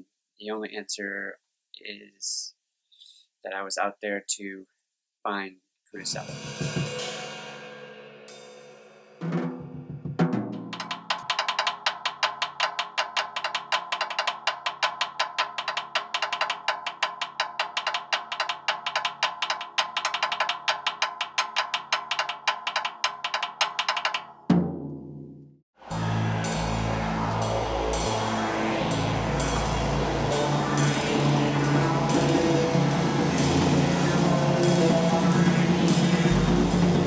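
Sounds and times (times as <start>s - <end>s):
fast drum strikes: 6.0s - 25.4s, 28.0s - 37.0s.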